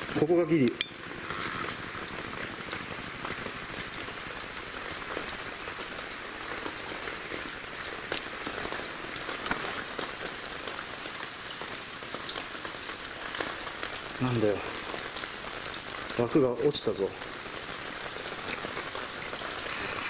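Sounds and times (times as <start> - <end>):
water pattering and dripping: 0.0 - 20.0.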